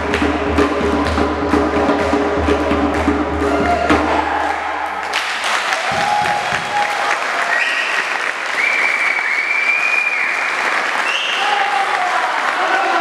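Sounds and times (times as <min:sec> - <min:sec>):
percussion: 0:00.0 - 0:09.2
people clapping and applauding: 0:04.3 - 0:13.0.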